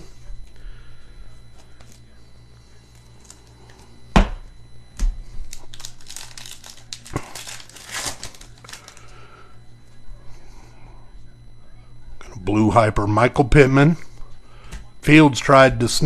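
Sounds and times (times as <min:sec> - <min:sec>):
wrapper tearing and crinkling: 0:05.5 - 0:09.1.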